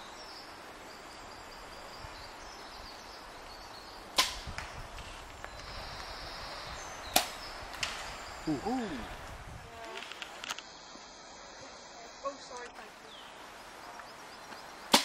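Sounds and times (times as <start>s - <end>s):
arrow hitting target crack: 4.1s - 4.8s, 7.1s - 8.1s.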